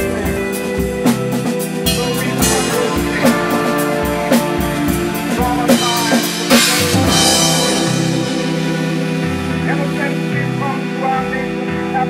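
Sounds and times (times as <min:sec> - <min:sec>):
drum kit beating: 0:00.0 - 0:11.3
bass guitar notes: 0:00.0 - 0:11.9
electric guitar notes: 0:01.8 - 0:11.9
cymbal crash: 0:01.9 - 0:10.3.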